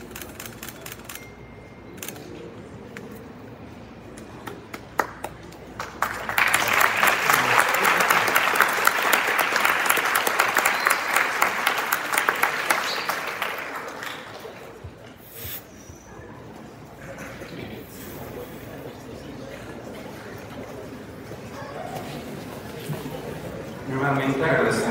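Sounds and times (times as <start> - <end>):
audience applauding: 4.7 - 15.0.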